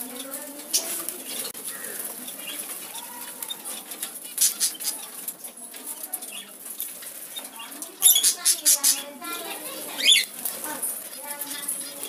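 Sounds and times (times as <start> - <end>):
birds pecking crunchy clicks: 0.0 - 12.0
wing flutters: 0.0 - 12.0.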